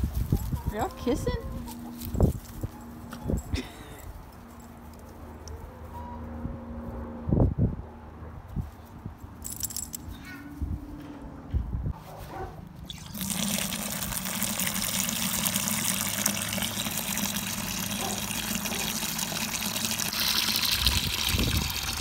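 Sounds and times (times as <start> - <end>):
water splashing into plastic bucket: 12.9 - 22.0.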